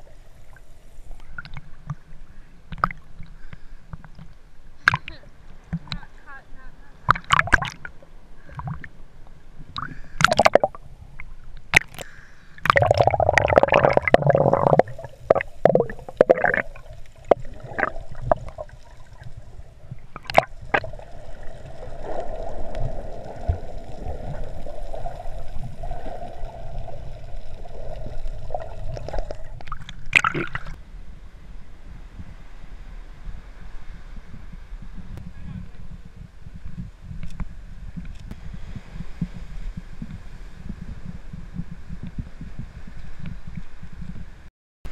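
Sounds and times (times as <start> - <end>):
muffled underwater rush: 6.9 - 44.9
water sloshing and splashing: 7.1 - 8.9, 12.6 - 30.8.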